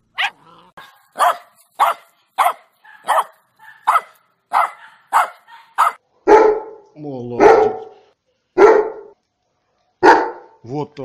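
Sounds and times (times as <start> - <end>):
dog barking: 0.2 - 6.8, 7.4 - 8.0, 8.6 - 9.2, 10.0 - 10.6.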